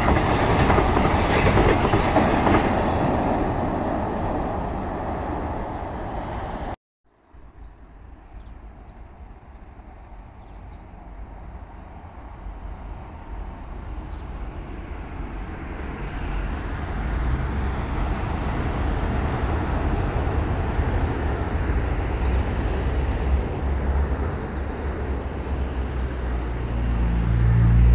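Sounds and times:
high-speed train passing: 0:00.0 - 0:27.9.

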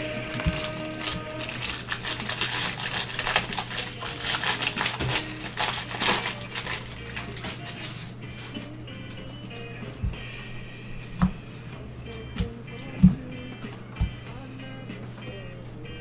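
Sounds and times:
foil wrapper crinkling and tearing: 0:00.0 - 0:08.7.

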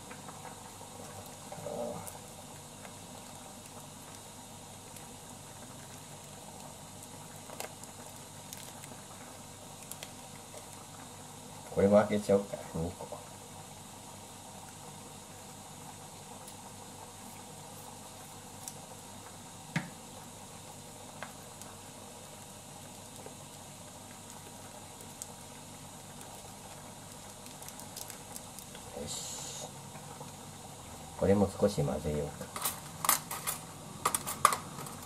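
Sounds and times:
water simmering in a saucepan: 0:00.0 - 0:33.0
sachets crinkling and tearing: 0:27.1 - 0:28.8.

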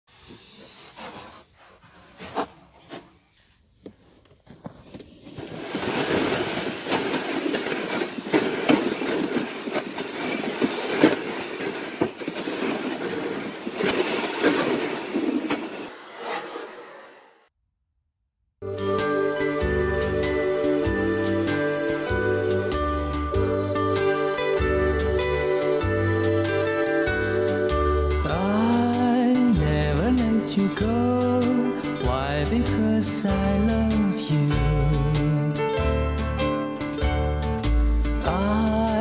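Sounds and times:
boots crunching over snow: 0:04.4 - 0:15.8
sled scraping on snowy ice: 0:04.6 - 0:17.3.

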